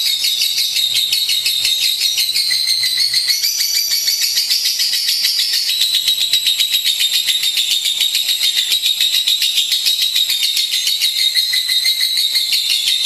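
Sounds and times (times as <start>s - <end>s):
lovebird chattering: 0.0s - 13.0s.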